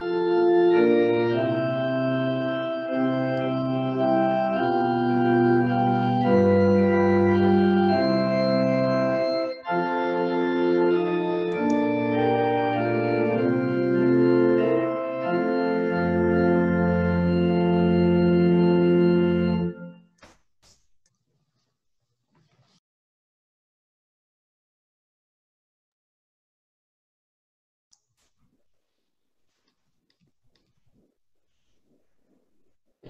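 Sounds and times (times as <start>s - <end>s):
church organ playing chords: 0.0s - 20.0s.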